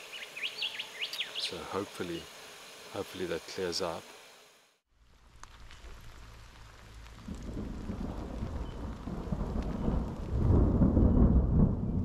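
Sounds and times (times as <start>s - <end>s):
low rumbling: 5.0s - 12.0s
heavy rain pouring: 5.2s - 12.0s.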